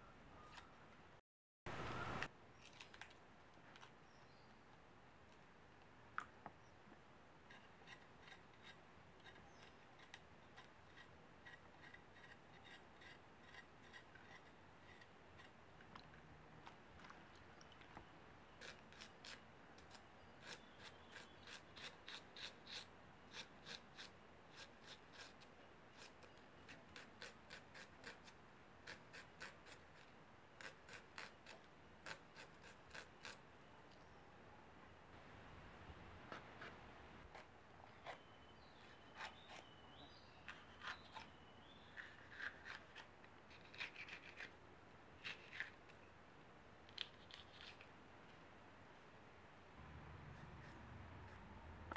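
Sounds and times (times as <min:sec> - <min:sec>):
knife slicing onions: 0:18.6 - 0:33.4, 0:40.5 - 0:44.5.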